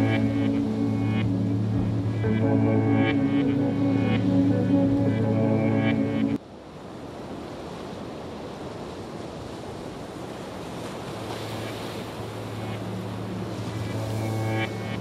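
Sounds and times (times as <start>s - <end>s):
low steady hum: 0.0s - 6.4s
sea waves washing on shore: 5.8s - 15.0s.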